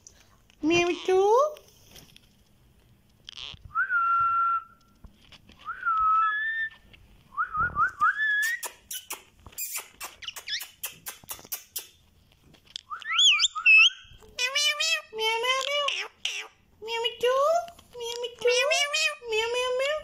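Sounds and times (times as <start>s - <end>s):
parakeet clicking: 8.4s - 12.0s
parakeet whistling: 12.9s - 14.9s.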